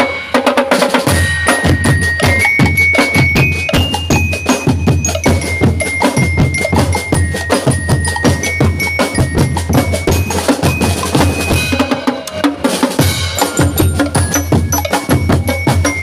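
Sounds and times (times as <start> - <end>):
marching snare and bass drums: 0.0 - 16.0
bell lyres ringing a melody: 1.0 - 16.0.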